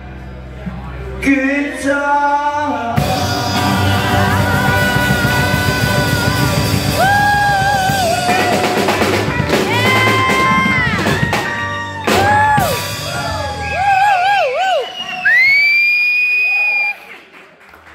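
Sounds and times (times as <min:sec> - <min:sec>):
man singing: 0:01.2 - 0:10.8
drum kit with cymbals: 0:03.0 - 0:14.6.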